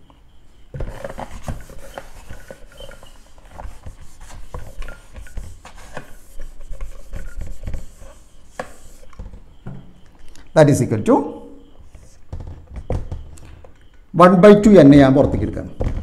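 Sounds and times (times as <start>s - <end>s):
eraser knocking on whiteboard: 0.8s - 9.8s
eraser wiping whiteboard: 0.9s - 9.1s.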